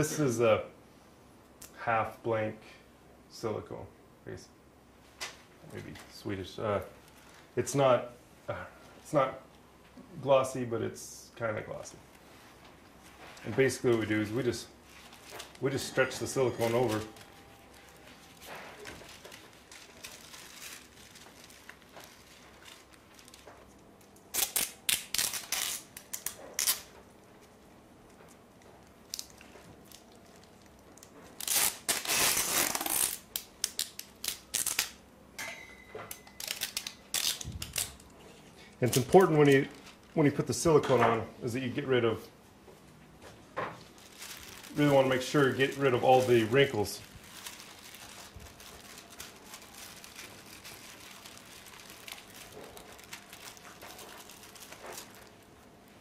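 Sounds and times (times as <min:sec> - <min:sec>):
silicone sheet crinkling: 0:12.0 - 0:35.0, 0:36.0 - 0:38.2, 0:38.8 - 0:40.8, 0:43.4 - 0:56.0
short tape rips and crackles: 0:13.2 - 0:35.0, 0:36.2 - 0:38.1, 0:38.8 - 0:40.2, 0:43.8 - 0:55.5
tape ripping off roll: 0:16.6 - 0:27.0, 0:29.1 - 0:35.0, 0:36.4 - 0:38.0.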